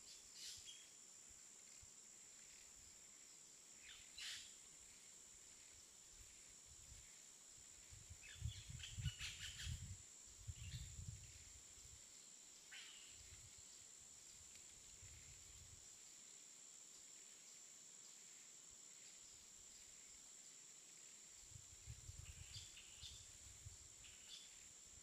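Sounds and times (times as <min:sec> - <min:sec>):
high insect drone: 0:00.0 - 0:25.0
bird chirps: 0:03.8 - 0:04.6, 0:08.2 - 0:09.9.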